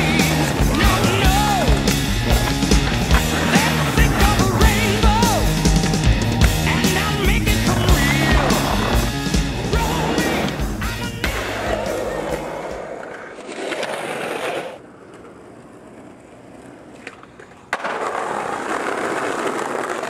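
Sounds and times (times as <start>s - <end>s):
skateboard wheels rolling: 0.0s - 20.0s
skateboard landing slap: 17.0s - 20.0s.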